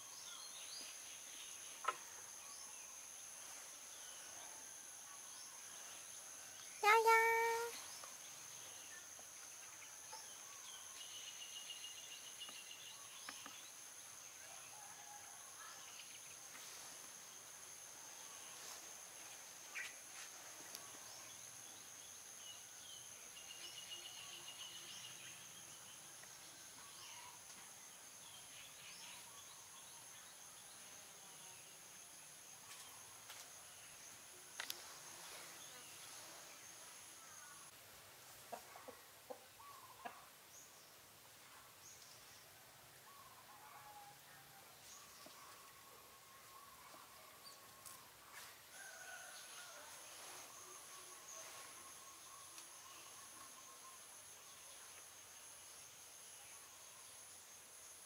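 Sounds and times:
insects droning: 0.0 - 58.0
faint bird-like chirps: 26.7 - 27.5.

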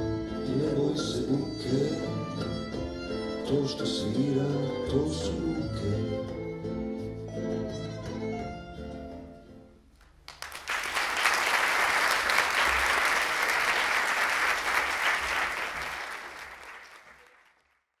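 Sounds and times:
audience applauding: 10.0 - 17.9.

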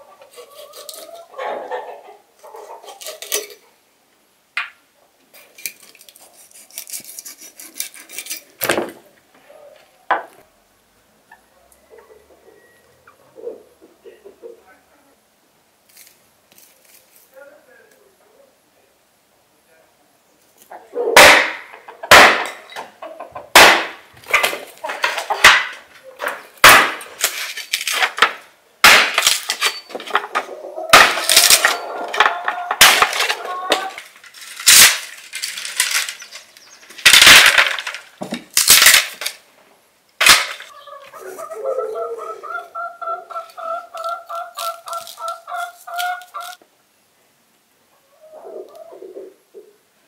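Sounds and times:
hatchet chopping wood: 21.2 - 22.6, 23.5 - 24.5, 26.6 - 27.1, 28.2 - 29.5, 30.9 - 31.7.

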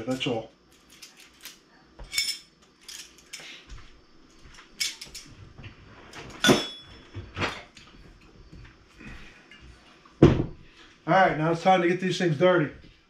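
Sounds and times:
metal utensils clinking: 0.0 - 3.5, 4.8 - 5.3.

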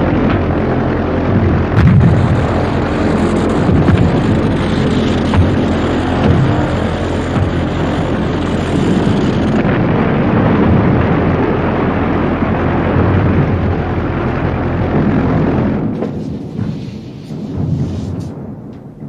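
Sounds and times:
propeller plane engine droning: 0.0 - 19.0
rush of air: 15.1 - 18.6.

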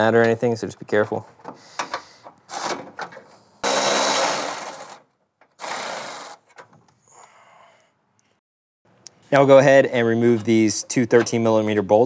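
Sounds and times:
electric ratchet whirring: 3.6 - 5.0, 5.6 - 6.5.

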